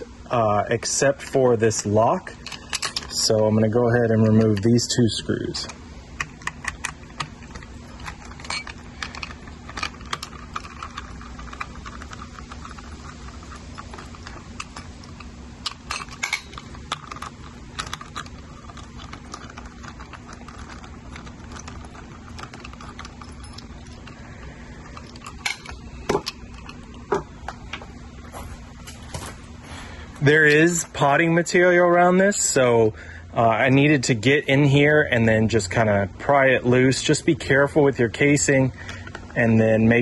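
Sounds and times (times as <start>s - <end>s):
screwdriver clicking and scraping: 5.6s - 24.2s.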